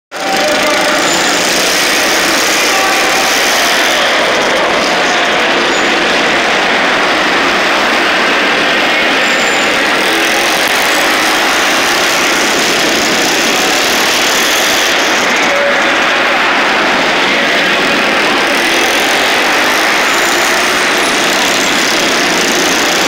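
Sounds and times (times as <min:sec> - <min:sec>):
racing kart engines droning: 0:00.1 - 0:23.0.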